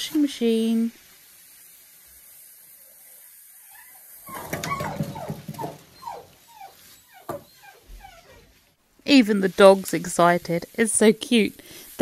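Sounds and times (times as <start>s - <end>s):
dog whining: 3.6s - 8.6s.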